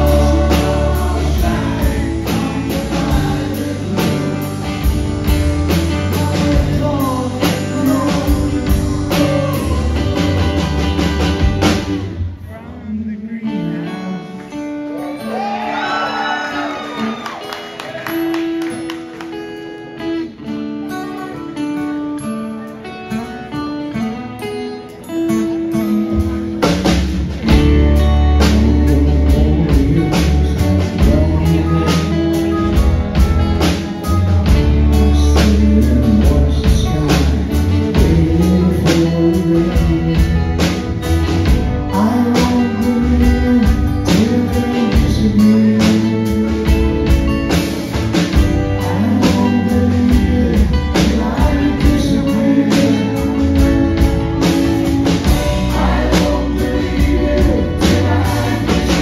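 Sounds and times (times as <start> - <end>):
person singing: 0.0 - 10.7, 22.6 - 59.0
live band playing: 0.0 - 59.0.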